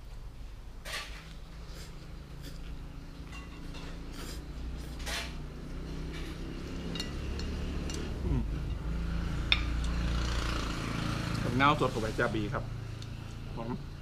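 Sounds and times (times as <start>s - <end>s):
person slurping noodles: 1.6s - 2.8s, 4.0s - 5.1s
chopsticks clicking against plate: 6.2s - 8.8s.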